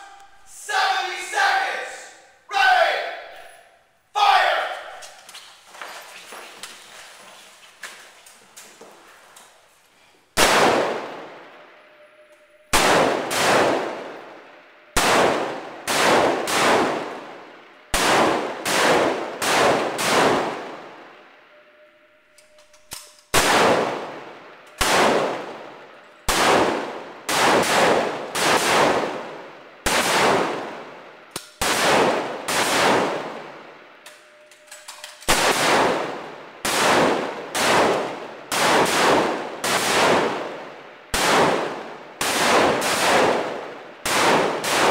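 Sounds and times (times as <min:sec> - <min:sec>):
rifle shots echoing: 0:10.4 - 0:11.7, 0:12.7 - 0:21.3, 0:23.3 - 0:34.0, 0:35.2 - 0:44.9.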